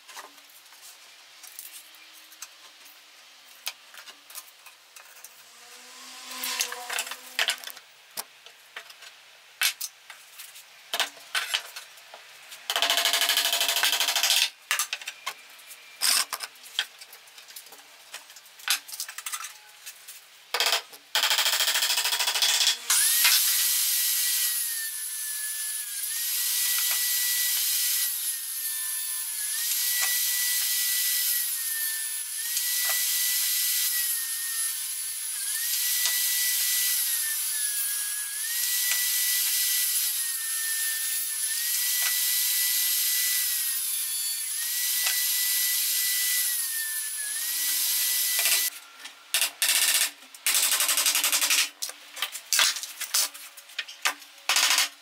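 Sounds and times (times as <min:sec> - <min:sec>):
circular saw ripping board: 0:05.1 - 0:07.9.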